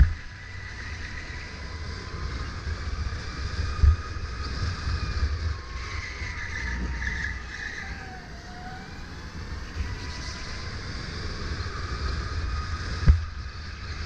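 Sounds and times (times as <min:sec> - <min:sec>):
low rumble: 0:00.0 - 0:03.0
electric motor whine: 0:00.0 - 0:14.0.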